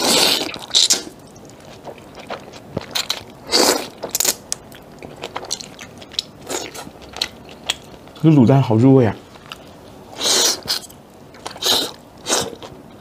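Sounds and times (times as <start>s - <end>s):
person slurping noodles: 0.0s - 1.1s, 10.2s - 10.8s, 11.5s - 12.6s
wet chewing and mouth clicks: 0.0s - 8.3s.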